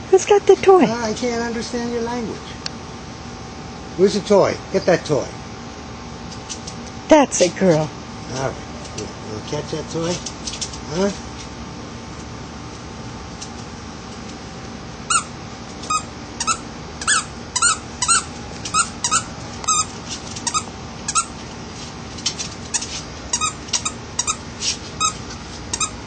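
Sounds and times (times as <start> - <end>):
squeaky toy squeaking: 15.9 - 21.3, 22.8 - 24.4, 25.0 - 26.0.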